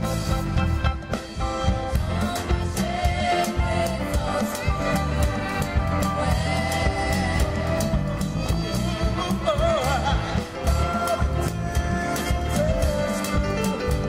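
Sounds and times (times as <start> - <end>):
band with steady drum beat: 0.0 - 14.0
person singing with vibrato: 1.1 - 14.0.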